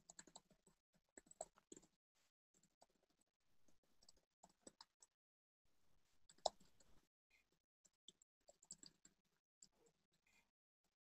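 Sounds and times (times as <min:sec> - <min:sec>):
faint irregular clicks: 0:00.0 - 0:02.0, 0:02.6 - 0:05.2, 0:06.3 - 0:10.5.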